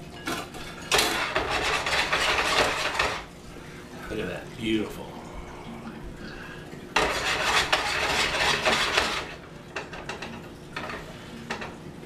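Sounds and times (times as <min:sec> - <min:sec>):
pan scraping on stove: 0:00.3 - 0:03.3, 0:07.0 - 0:11.8.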